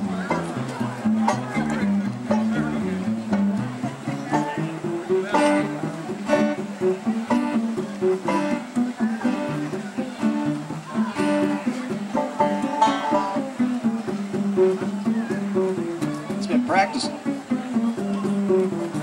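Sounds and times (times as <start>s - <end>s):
acoustic guitar strumming: 0.0s - 19.0s
upright bass line: 0.0s - 19.0s.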